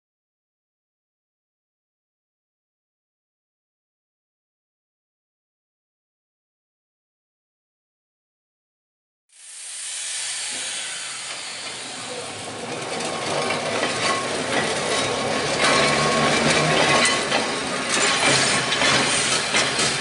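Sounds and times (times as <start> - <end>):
tram motor hum and hiss: 9.3 - 20.0
wheels clicking over rail joints: 11.3 - 20.0.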